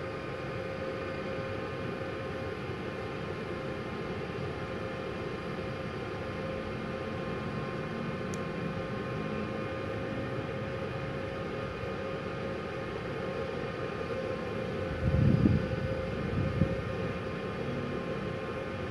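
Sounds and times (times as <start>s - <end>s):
welder cooling fan humming: 0.0s - 18.9s.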